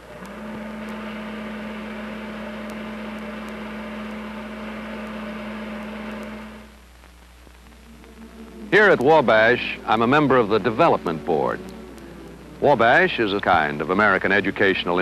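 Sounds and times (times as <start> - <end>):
film projector humming: 0.0 - 15.0.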